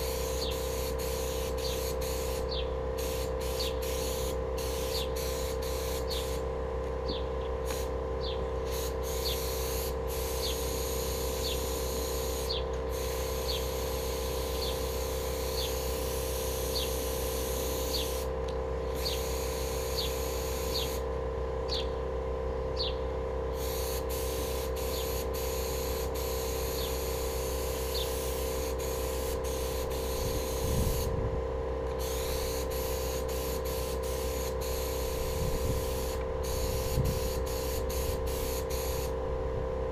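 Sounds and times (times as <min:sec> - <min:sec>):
paint spray gun hissing: 0:00.0 - 0:06.5, 0:07.6 - 0:08.0, 0:08.6 - 0:21.0, 0:23.5 - 0:31.1, 0:31.9 - 0:39.2
steady hum: 0:00.0 - 0:39.9.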